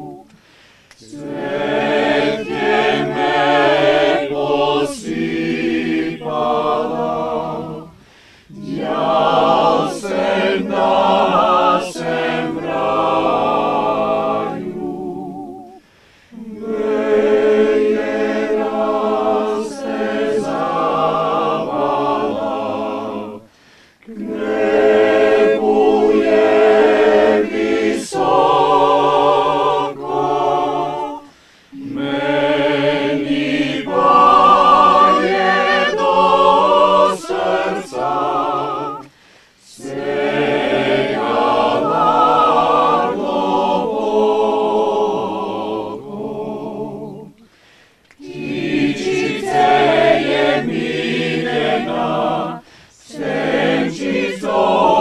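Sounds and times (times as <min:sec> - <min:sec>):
mixed choir singing a cappella: 0:00.0 - 0:55.0
singers breathing: 0:00.3 - 0:01.0, 0:07.9 - 0:08.6, 0:15.8 - 0:16.4, 0:23.4 - 0:24.1, 0:31.2 - 0:31.8, 0:39.0 - 0:39.6, 0:47.4 - 0:48.2, 0:52.6 - 0:53.1.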